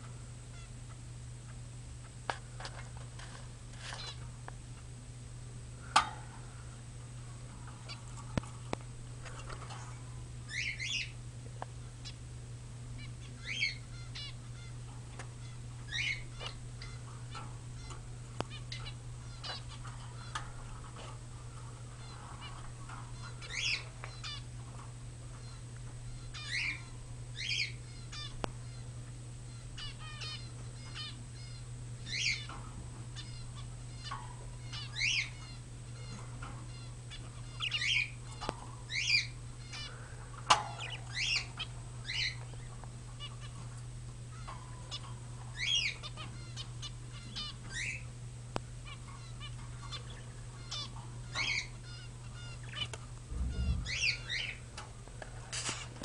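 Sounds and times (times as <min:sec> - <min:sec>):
steady low hum: 0:00.0 - 0:56.0
budgerigars chirping and warbling: 0:04.0 - 0:04.2, 0:10.5 - 0:11.2, 0:13.0 - 0:28.9, 0:29.5 - 0:48.1, 0:48.8 - 0:54.8.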